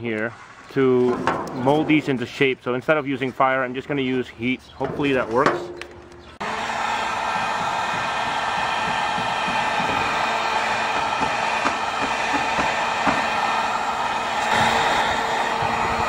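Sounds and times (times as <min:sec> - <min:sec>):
heat gun fan humming: 0:04.9 - 0:16.0.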